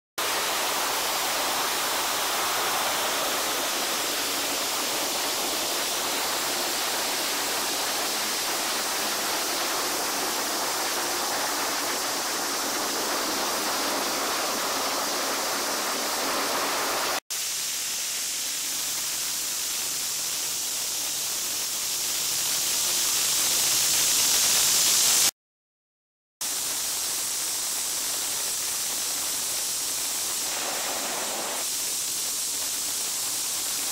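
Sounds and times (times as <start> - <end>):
car wash spraying water: 0.2 - 25.3, 26.4 - 33.9.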